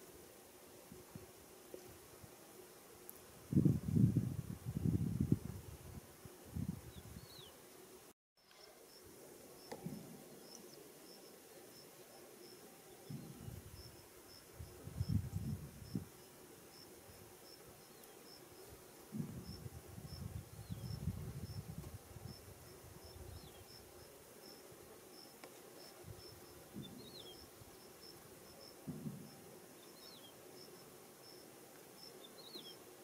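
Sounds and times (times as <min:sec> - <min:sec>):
high insect chirp: 0:08.4 - 0:32.9.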